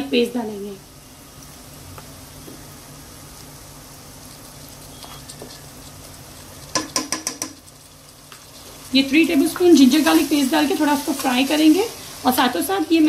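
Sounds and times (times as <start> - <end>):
onions sizzling in hot oil: 0.0 - 13.0
spoon clicking and scraping pot: 6.6 - 8.4.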